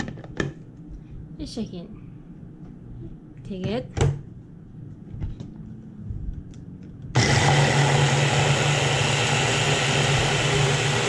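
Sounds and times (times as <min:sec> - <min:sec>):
blender motor whirring: 0:07.2 - 0:11.0.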